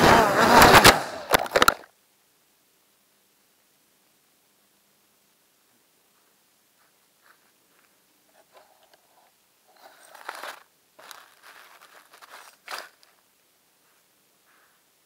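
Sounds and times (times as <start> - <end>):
grass rubbing against camera: 9.8 - 13.2.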